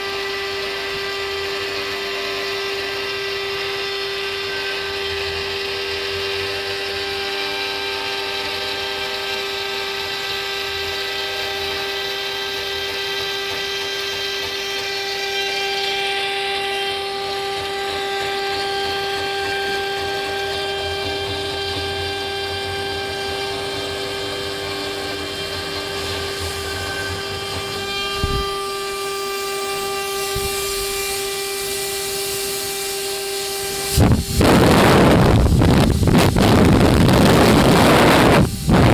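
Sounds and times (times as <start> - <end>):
router spindle whine: 0.0 - 38.9
loud rush of noise: 33.8 - 38.9.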